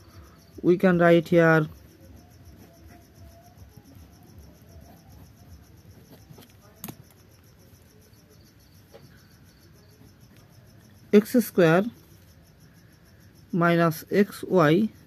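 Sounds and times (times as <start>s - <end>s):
pen scratching on paper: 1.7s - 7.1s.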